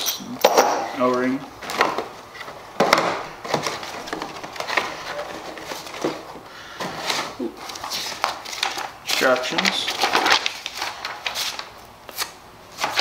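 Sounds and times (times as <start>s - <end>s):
plastic packaging crackling: 7.0s - 13.0s.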